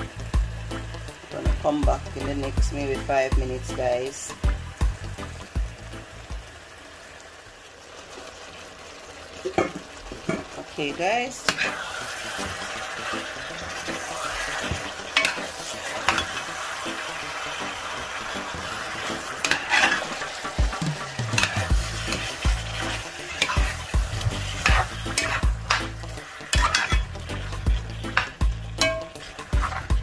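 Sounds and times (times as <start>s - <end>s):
stew sizzling in metal pot: 0.0s - 30.0s
wooden spoon stirring and scraping: 18.4s - 30.0s.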